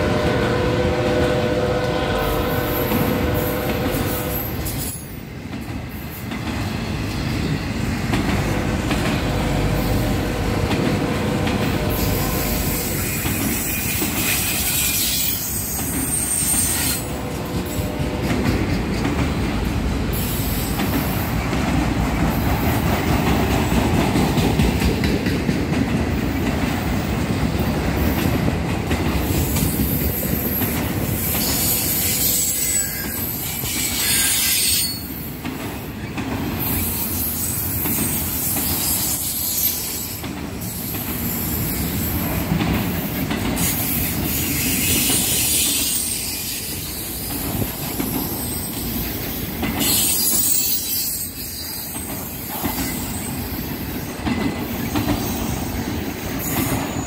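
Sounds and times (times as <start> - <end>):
train wheels rumbling on rails: 0.0 - 57.0
high-pitched wheel squeal: 11.9 - 17.1, 31.4 - 35.1, 49.8 - 52.0.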